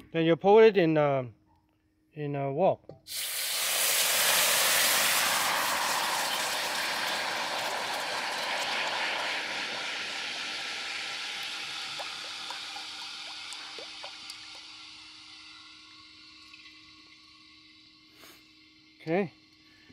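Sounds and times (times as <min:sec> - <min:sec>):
sauce sizzling in a wok: 0:03.1 - 0:19.0
bubbles popping: 0:04.9 - 0:14.7.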